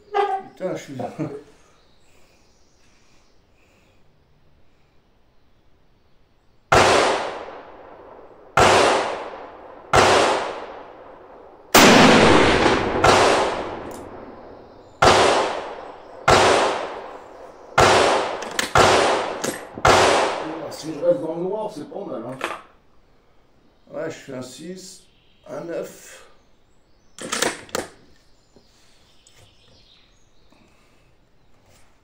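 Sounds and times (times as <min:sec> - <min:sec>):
rifle shots echoing: 0:06.7 - 0:20.9.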